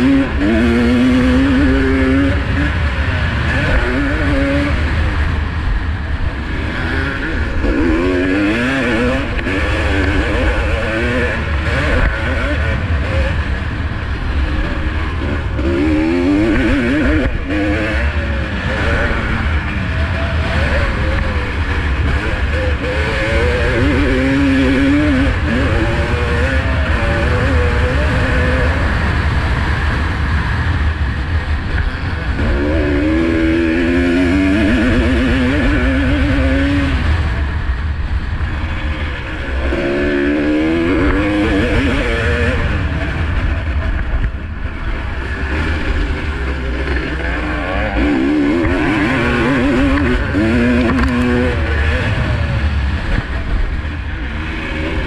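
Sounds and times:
two-stroke motocross engine revving: 0.0s - 55.0s.

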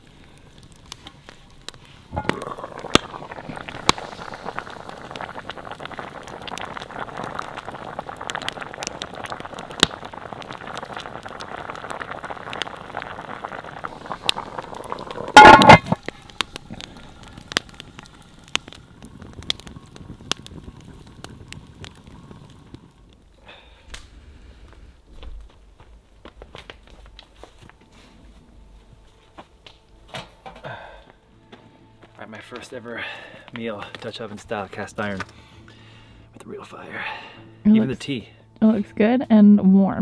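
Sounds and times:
stew bubbling: 0.0s - 24.7s
fire crackling and popping: 0.0s - 39.2s
metal lid clanking: 15.3s - 16.0s.

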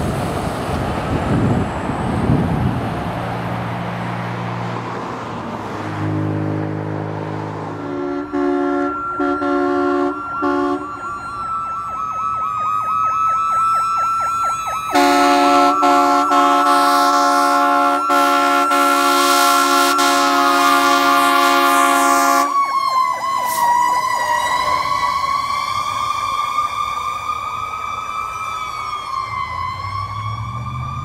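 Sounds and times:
siren wailing: 5.8s - 31.0s
air horn blasts: 7.6s - 11.5s, 14.8s - 22.6s, 23.2s - 24.9s
electronic siren yelp: 7.7s - 31.0s.

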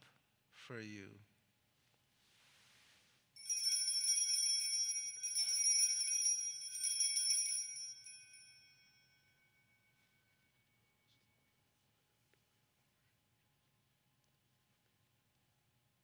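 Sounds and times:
small bells jingling: 3.4s - 11.5s.

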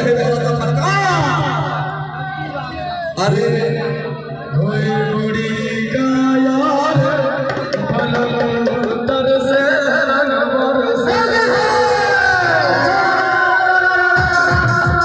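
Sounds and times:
drums: 2.8s - 15.0s
person singing: 11.5s - 15.0s.

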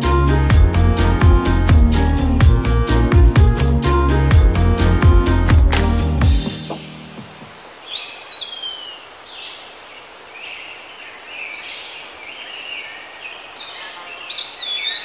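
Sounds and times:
faint outdoor hiss: 6.4s - 15.0s
birds calling: 7.2s - 15.0s.

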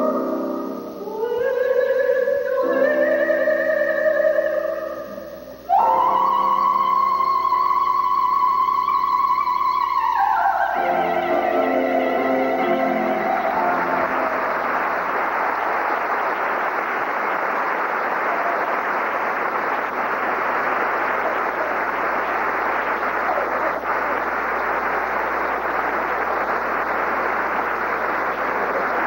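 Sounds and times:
audience applauding: 0.0s - 1.0s, 5.0s - 29.0s
soprano singing: 0.0s - 15.0s.

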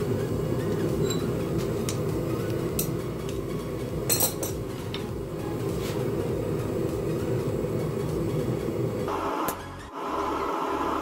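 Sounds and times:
tongs clinking on anvil: 1.0s - 2.0s, 2.7s - 3.0s, 4.1s - 5.0s
metal clank on anvil: 4.1s - 4.6s.

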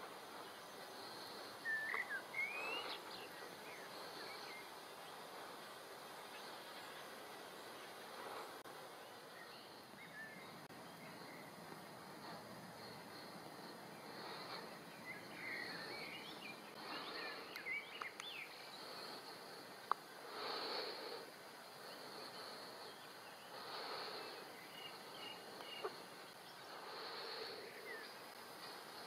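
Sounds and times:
insect song: 0.0s - 29.0s.

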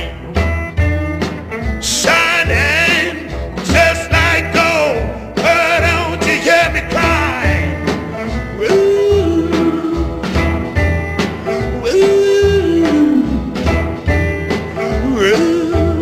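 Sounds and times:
driving bass riff: 0.0s - 16.0s
person singing long notes: 8.5s - 10.3s, 11.6s - 13.7s, 14.9s - 16.0s.

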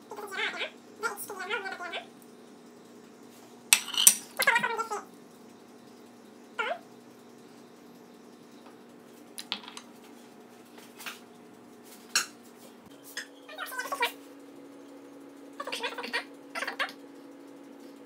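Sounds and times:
steady hum: 0.0s - 18.0s
clinks of bowl and glass dish: 3.8s - 4.3s
high-pitched animal cry: 15.6s - 17.0s.

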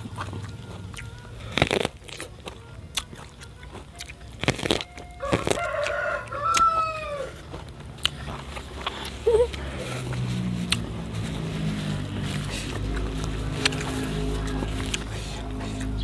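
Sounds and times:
crunching bites into corn: 0.0s - 16.0s
rooster crowing: 4.8s - 7.6s, 12.1s - 16.0s.

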